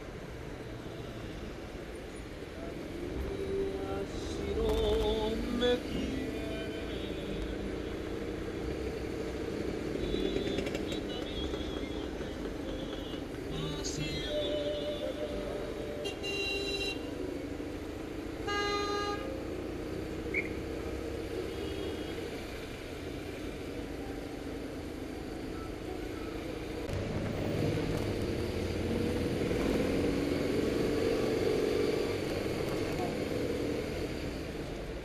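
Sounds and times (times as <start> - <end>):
city traffic: 0.0 - 35.0
vehicle horn tooting: 10.0 - 12.2, 16.0 - 17.1, 18.4 - 19.3.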